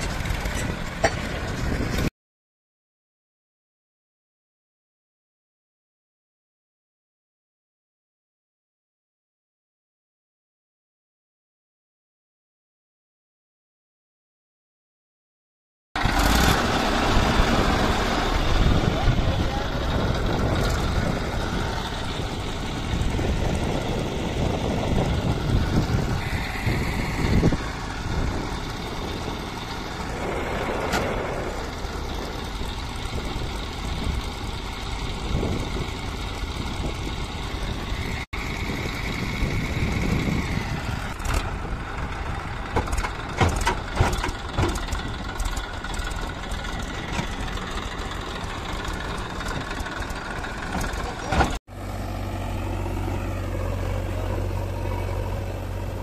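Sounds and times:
tractor diesel engine running: 0.0s - 2.1s, 16.0s - 56.0s.

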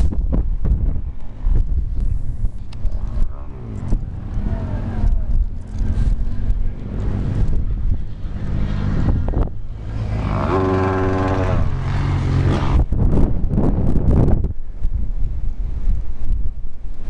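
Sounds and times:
wind buffeting microphone: 0.0s - 17.0s
vehicle engine running: 1.5s - 14.4s.

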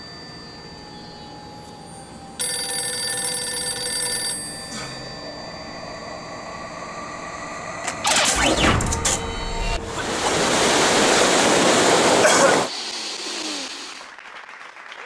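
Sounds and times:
payphone ringing: 0.0s - 6.7s.

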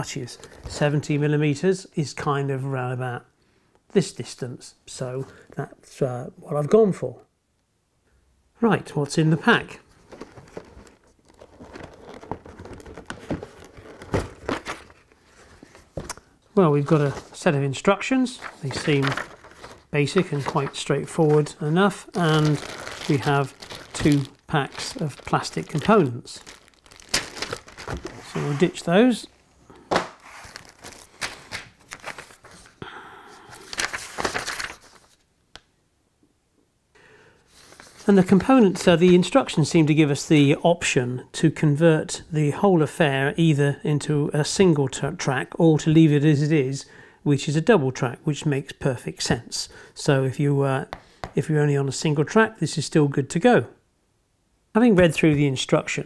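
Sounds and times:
cardboard rustling and scraping: 9.8s - 16.2s, 16.8s - 17.5s, 18.3s - 28.9s, 30.0s - 32.8s, 37.5s - 38.9s
paper sheet shuffling: 9.8s - 29.2s, 30.0s - 32.8s, 33.5s - 35.2s, 37.5s - 39.3s.

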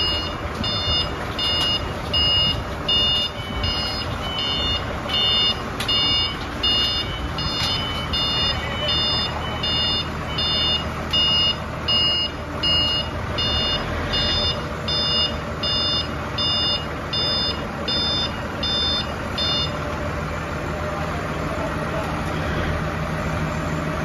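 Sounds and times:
forklift reversing alarm beeping: 0.0s - 20.0s
forklift engine running: 0.0s - 24.0s.

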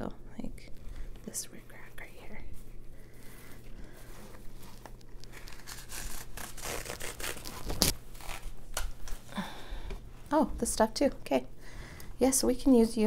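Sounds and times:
ribbons and packaging crinkling: 4.0s - 9.4s.

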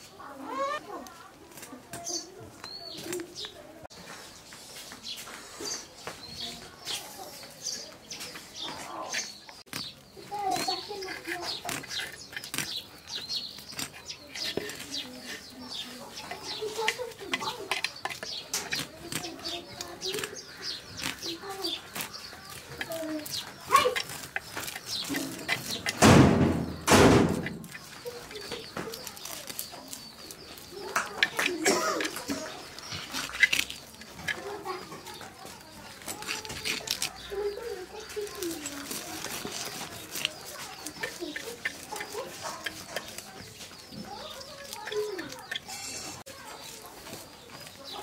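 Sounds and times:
chickens clucking: 1.7s - 48.0s
knife scraping fish scales: 9.0s - 9.9s, 10.5s - 26.0s, 27.4s - 34.6s, 36.0s - 46.8s.

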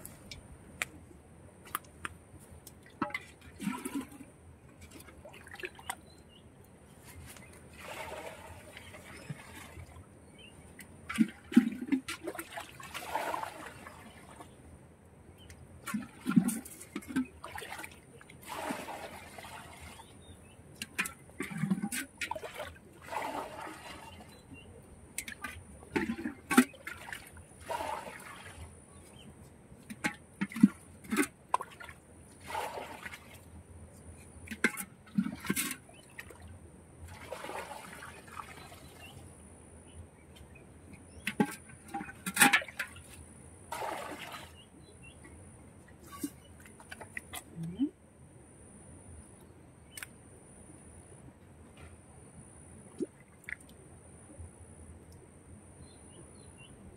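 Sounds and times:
water scooped and poured: 15.9s - 20.0s, 20.9s - 24.3s.

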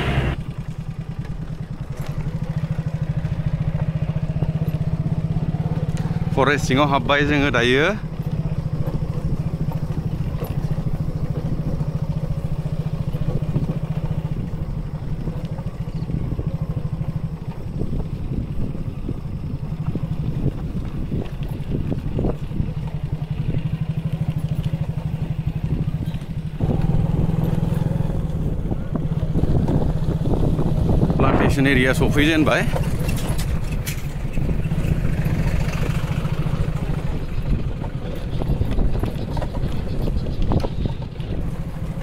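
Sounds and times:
tyre and road noise: 0.0s - 42.0s
vehicle engine running: 0.0s - 42.0s
knocks and rattles from bumps: 31.5s - 42.0s.

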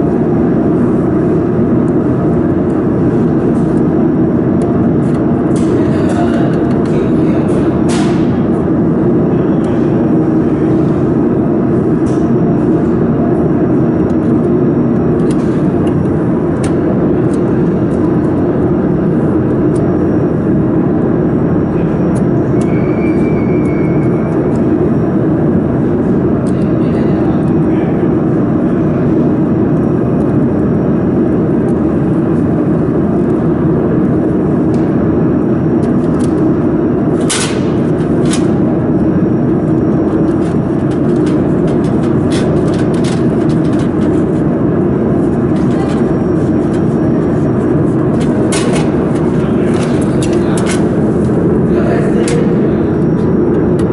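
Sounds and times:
machinery or fan running: 0.0s - 53.9s.

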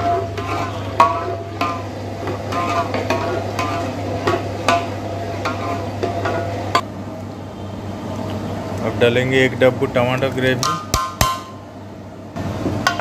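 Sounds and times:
metal ladle scraping pot: 0.0s - 6.6s
steady low hum: 0.0s - 13.0s.

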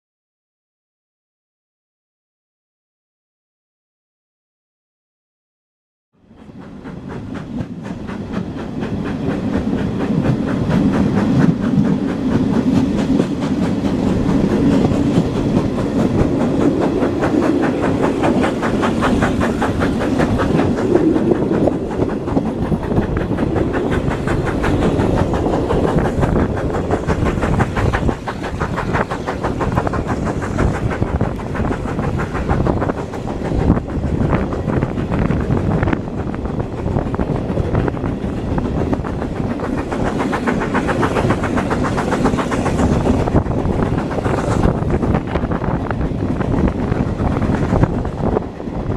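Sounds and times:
steam train running: 6.2s - 48.9s.

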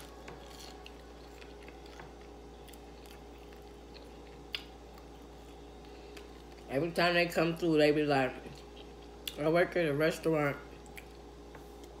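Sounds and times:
chewing fries: 0.0s - 7.0s, 8.4s - 9.4s, 10.6s - 12.0s.

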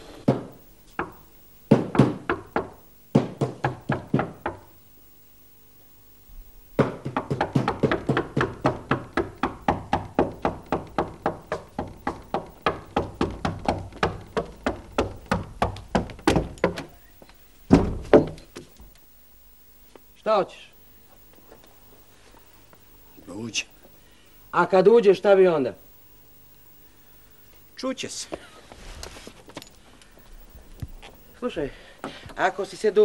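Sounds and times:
meat mallet pounding meat: 6.8s - 16.8s.

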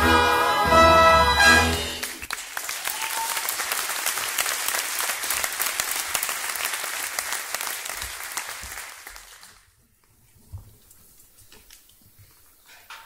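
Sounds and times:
audience applauding: 1.6s - 9.7s.

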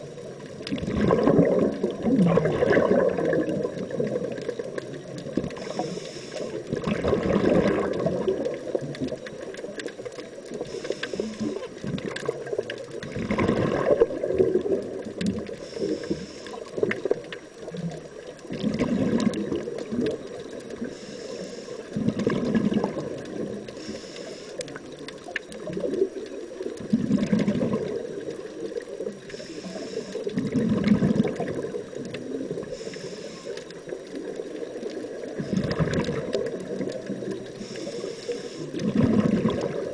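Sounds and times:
exhaled bubbles gurgling underwater: 0.0s - 39.9s
regulator inhalation hiss: 5.5s - 6.7s, 10.6s - 11.7s, 15.5s - 16.8s, 20.8s - 22.0s, 23.8s - 24.8s, 29.3s - 30.4s, 32.6s - 33.9s, 37.5s - 38.8s.

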